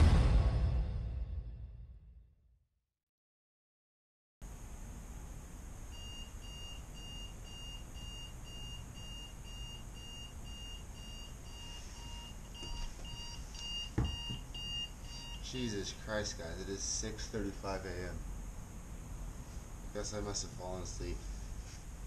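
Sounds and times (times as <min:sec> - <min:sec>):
steady low hum: 0:04.4 - 0:22.0
alarm beeping: 0:05.9 - 0:15.6.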